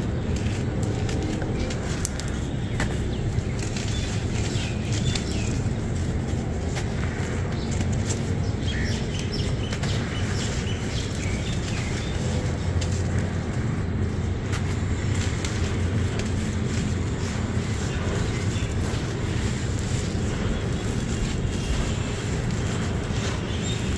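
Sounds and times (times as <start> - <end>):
grit crackling and pattering: 0.0 - 23.9
steady low rumble: 0.0 - 23.9.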